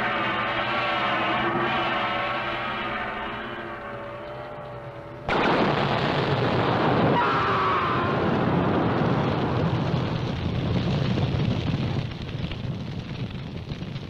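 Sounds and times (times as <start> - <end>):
loud blast: 0.0 - 10.6
wavering higher tone: 0.8 - 5.3.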